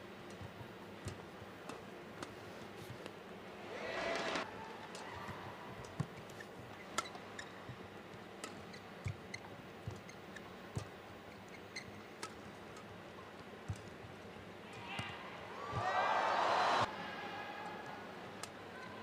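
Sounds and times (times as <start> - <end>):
low arena hum: 1.9 - 5.8, 13.5 - 19.0
shoes squeaking on court: 6.0 - 13.0.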